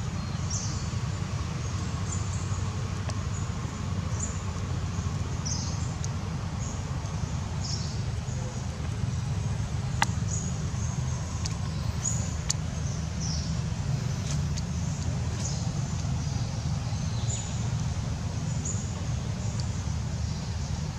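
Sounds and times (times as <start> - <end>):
steady low rumble: 0.0 - 20.9
faint clicks: 6.0 - 6.2, 14.2 - 16.3, 19.4 - 19.9.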